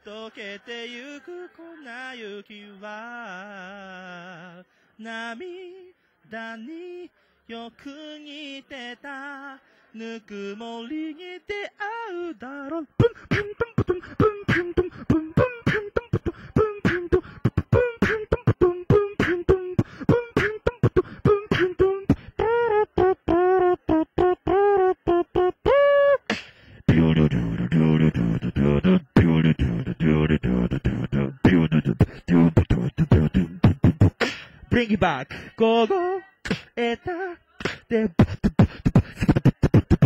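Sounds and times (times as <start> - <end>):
wavering sliding vocal lines: 3.8 - 40.0
person beatboxing into a microphone: 12.4 - 40.0.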